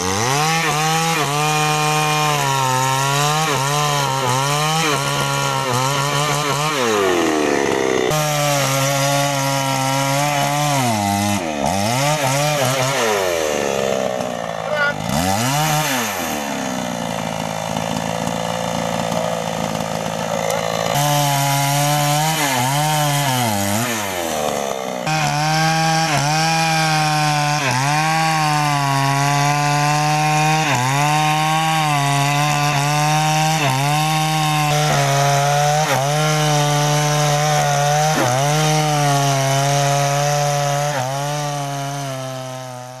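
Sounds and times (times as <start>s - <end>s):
chainsaw cutting wood: 0.0s - 43.0s.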